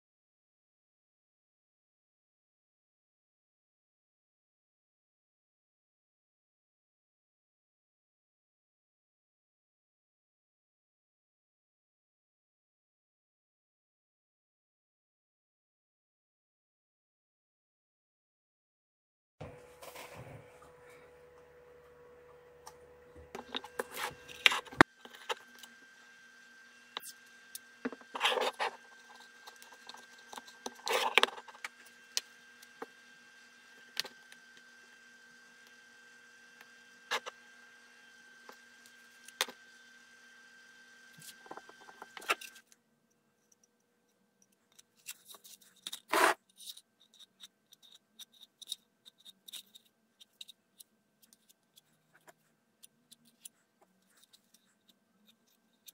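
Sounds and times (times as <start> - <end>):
metal spatula scraping putty: 23.4 - 25.7, 27.0 - 32.9, 44.7 - 50.6.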